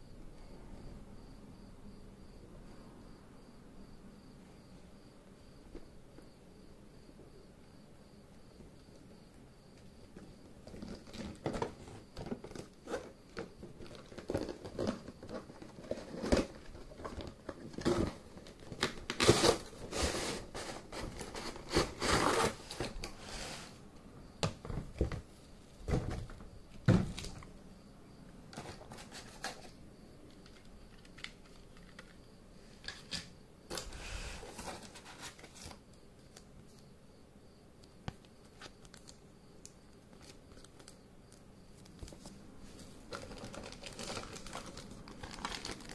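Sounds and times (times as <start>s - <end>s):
plastic parts shifting: 10.2s - 23.2s, 43.0s - 45.9s
plastic packaging crinkling: 10.6s - 23.2s, 40.1s - 41.0s, 41.7s - 45.9s.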